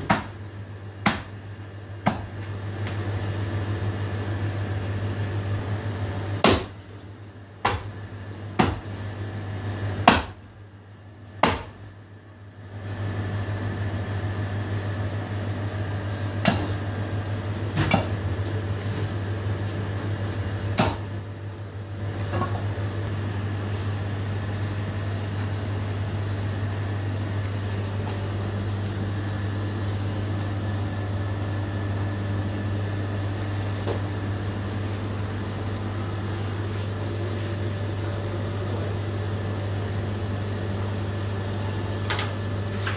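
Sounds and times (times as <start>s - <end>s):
axe chopping onto wooden block: 0.0s - 0.4s, 1.0s - 1.3s, 6.4s - 6.7s, 7.6s - 7.9s, 8.6s - 8.8s, 10.0s - 10.4s, 11.4s - 11.8s, 20.8s - 21.0s
steady low hum: 0.0s - 42.9s.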